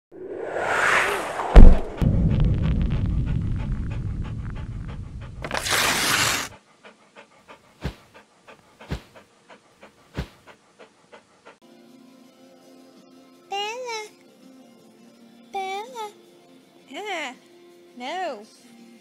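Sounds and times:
whoosh: 0.1 - 5.5
thump: 1.3 - 4.0
short low thuds: 1.3 - 5.5
dog panting: 3.0 - 5.5, 6.2 - 11.6.

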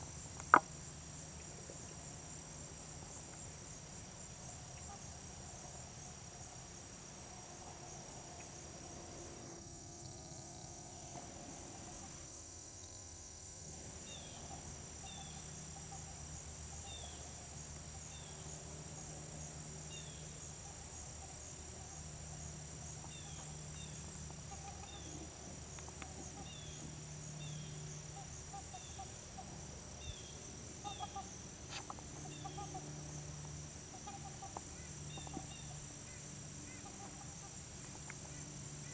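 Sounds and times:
crickets and insects chirring: 0.0 - 38.9
faint low waterfowl calls: 30.8 - 32.9, 33.8 - 37.6.

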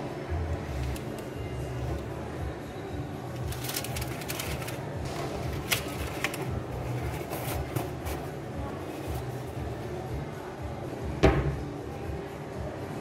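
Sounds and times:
paper rustling and crinkling: 3.4 - 9.4.

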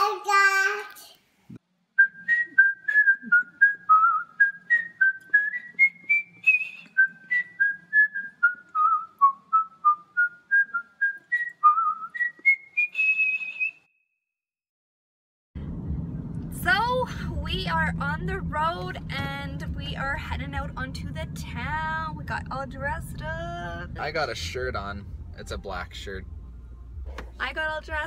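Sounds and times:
person whistling a tune: 2.0 - 13.9.

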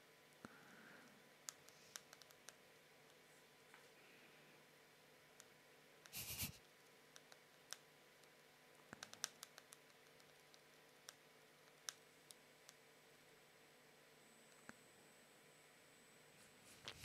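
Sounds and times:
faint clicks at computer desk: 1.5 - 3.8, 5.4 - 12.8.

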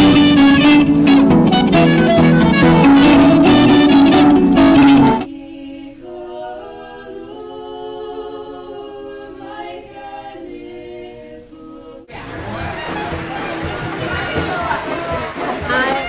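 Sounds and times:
burst of instrumental music: 0.0 - 5.3, 11.6 - 16.0
women singing in harmony: 4.6 - 12.1.

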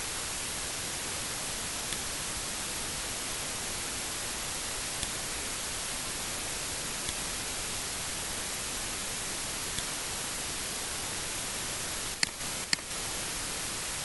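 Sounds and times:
recording hiss: 0.0 - 14.0
faint clicks: 1.9 - 2.1, 7.0 - 7.2, 12.2 - 12.9.

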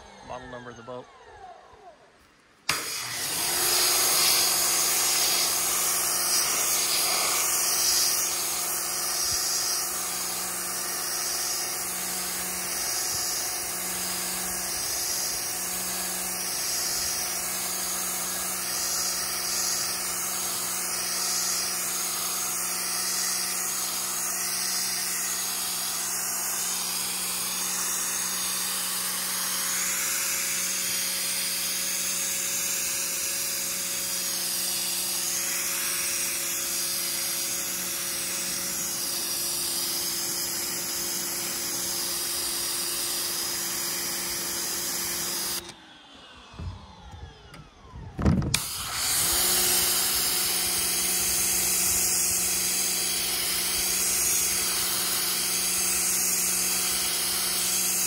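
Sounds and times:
high-pressure water jet hissing: 2.7 - 45.7, 48.5 - 58.0
pump motor humming: 2.7 - 45.8, 46.5 - 58.0.

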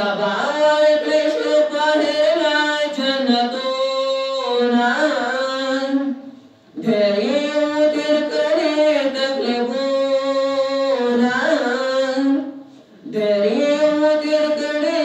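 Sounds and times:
man singing devotional poem: 0.0 - 15.0
singer breathing: 12.6 - 13.1.

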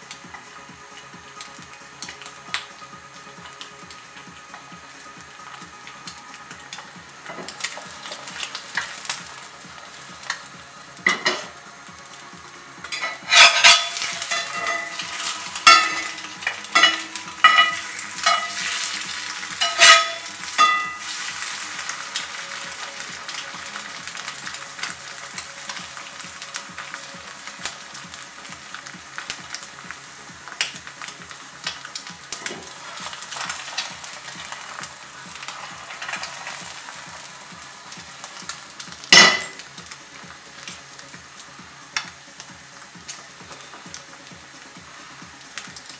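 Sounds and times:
egg sizzling in a skillet: 0.0 - 45.9
spatula scraping cast iron: 12.9 - 21.3.

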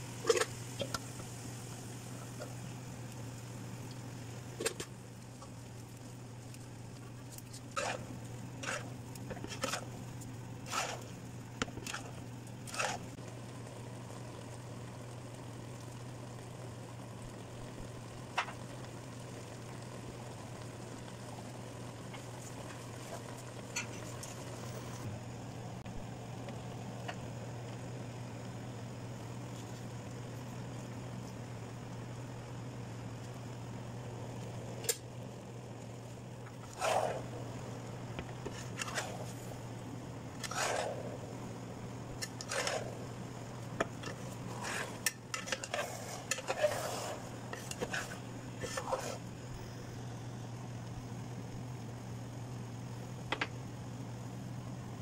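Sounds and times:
metal spoon scraping pot: 44.0 - 49.2.

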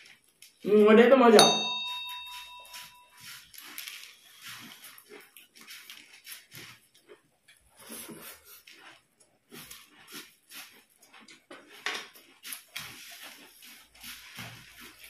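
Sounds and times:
puffed rice crunching as chewed: 0.0 - 0.7, 3.1 - 15.0
dry puffed rice rustling: 3.2 - 6.8, 12.3 - 15.0.

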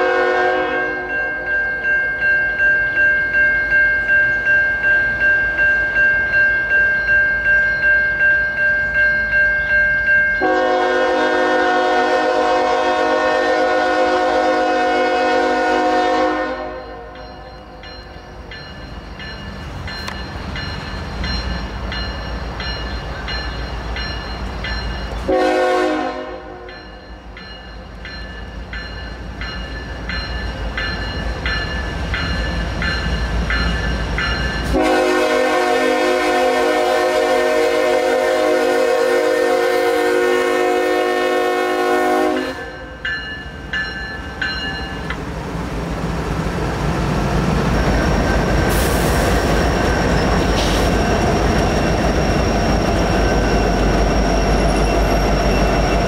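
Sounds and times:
locomotive horn: 0.0 - 1.2, 10.4 - 17.1, 25.3 - 26.7, 34.7 - 42.9
crossing bell ringing: 0.0 - 12.6, 13.2 - 56.0
locomotive rumble: 27.6 - 56.0.

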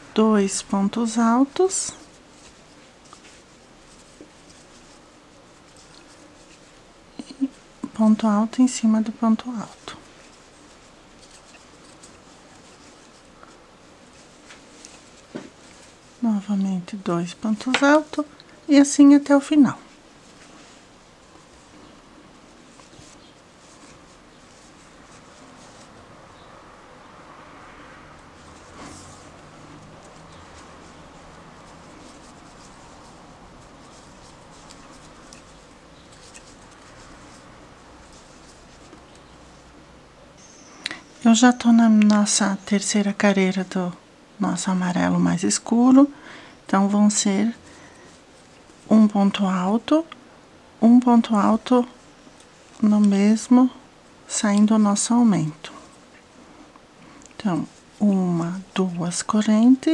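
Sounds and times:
yarn rustling with crochet hook: 0.0 - 26.9, 27.7 - 40.5, 44.4 - 50.2, 50.8 - 59.9
steady background hiss: 0.0 - 59.9
crochet hook scratching string: 9.3 - 13.4, 28.4 - 39.7.

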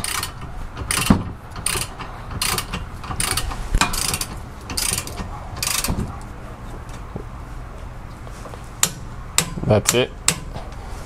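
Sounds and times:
ratchet wrench clicking: 0.0 - 5.9.

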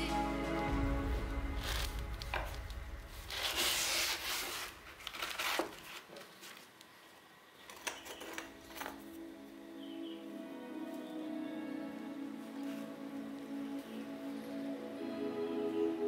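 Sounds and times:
sandpaper ripping: 1.6 - 6.7.

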